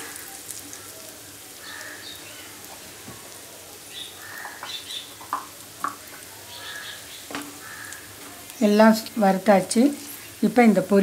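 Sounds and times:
nuts frying in hot oil: 0.0s - 11.0s.

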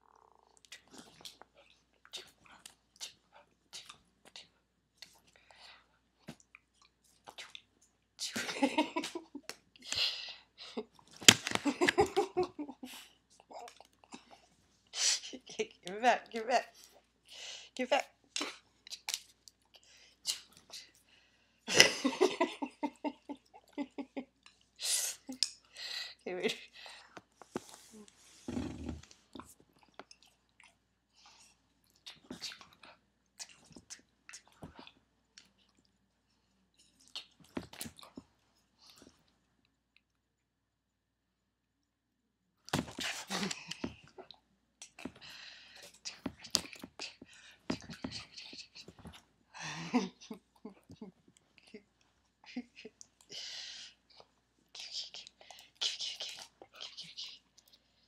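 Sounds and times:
woman laughing: 8.4s - 9.4s, 11.5s - 13.1s, 21.7s - 24.4s, 49.6s - 51.1s.

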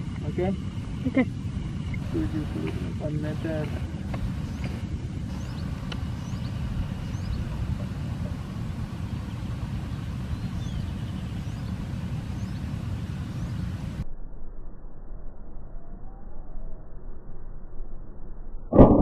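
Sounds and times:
small birds chirping: 0.0s - 14.0s
steady low rumble: 0.0s - 19.0s.

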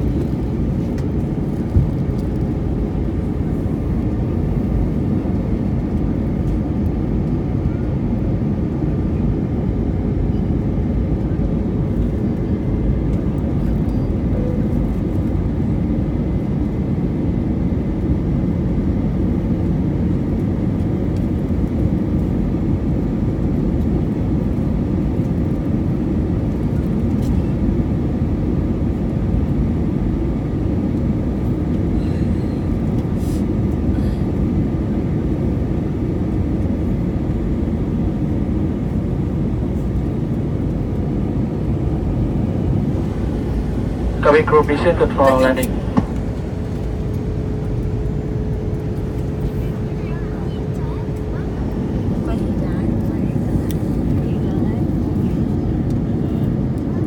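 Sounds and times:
aircraft cabin low rumble: 0.0s - 57.0s
faint steady tones: 43.0s - 47.6s.

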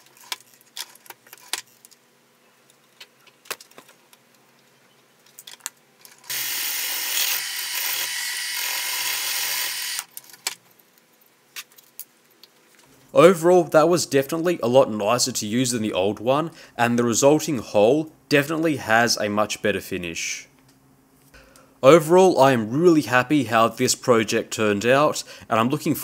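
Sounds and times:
milling machine cutting metal: 6.3s - 10.0s.

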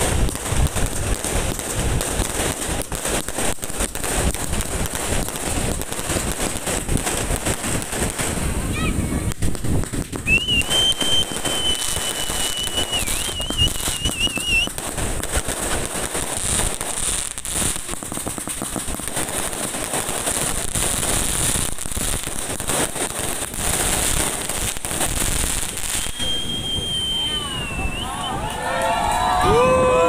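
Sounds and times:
fireworks crackling and banging: 0.0s - 30.0s
high firework whistle: 10.2s - 14.8s, 25.5s - 30.0s.

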